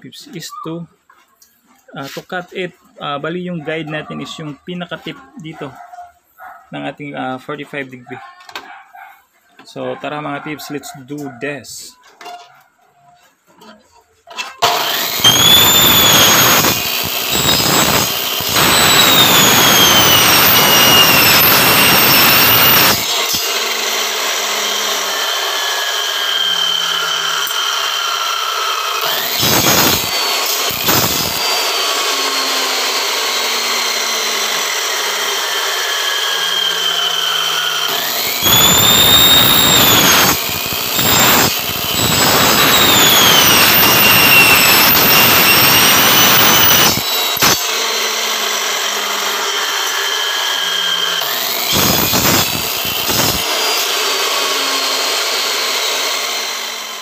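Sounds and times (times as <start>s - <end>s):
miter saw cutting aluminum: 13.6s - 57.0s
saw motor whine: 14.6s - 57.0s.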